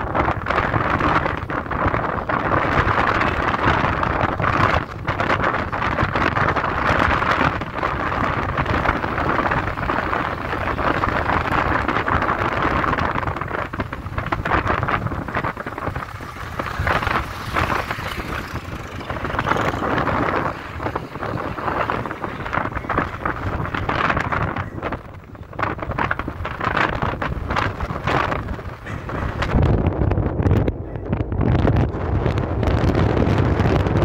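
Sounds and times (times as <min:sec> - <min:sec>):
road noise from moving vehicle: 0:00.0 - 0:34.0
wind buffeting microphone: 0:00.0 - 0:34.0.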